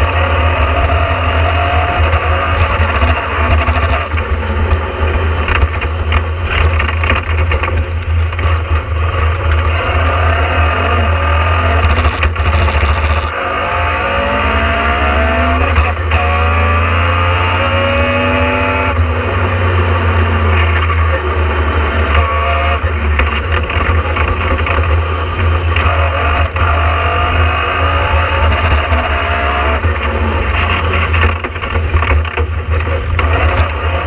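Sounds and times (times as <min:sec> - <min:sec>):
rattles and knocks from car body: 0:00.0 - 0:09.9, 0:11.8 - 0:13.4, 0:22.1 - 0:34.0
rally car engine running hard: 0:00.0 - 0:34.0.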